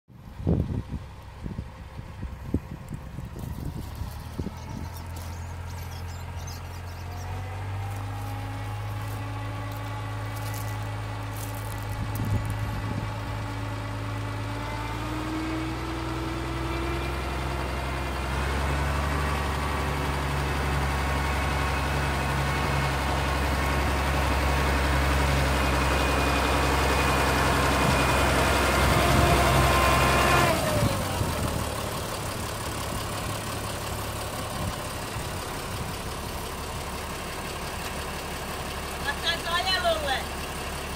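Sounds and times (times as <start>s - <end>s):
tractor diesel engine running: 0.1s - 40.9s.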